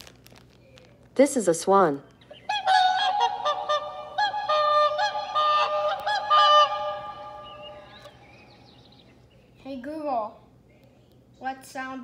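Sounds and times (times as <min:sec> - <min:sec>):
swans calling: 0:02.3 - 0:08.7.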